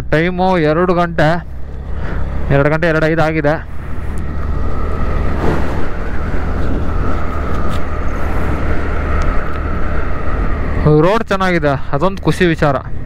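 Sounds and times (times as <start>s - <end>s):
motorcycle engine and road noise: 0.0s - 13.0s
wind on microphone: 5.1s - 10.5s.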